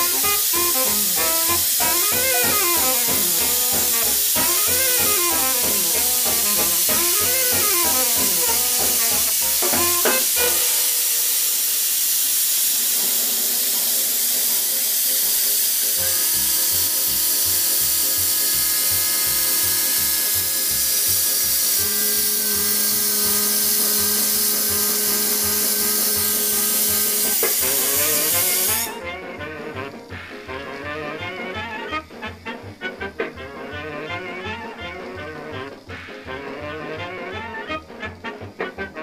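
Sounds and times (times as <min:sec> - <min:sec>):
background music: 0:00.0 - 0:11.1, 0:16.0 - 0:39.0
loud steady hiss: 0:00.0 - 0:39.0
low rhythmic pulses: 0:00.2 - 0:10.0.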